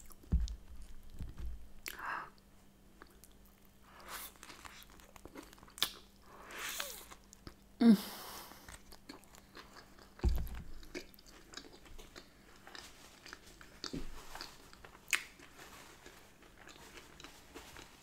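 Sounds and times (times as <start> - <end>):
dull thump: 0.2 - 1.6, 10.2 - 10.8
close-up chewing: 3.0 - 6.1, 8.6 - 18.0.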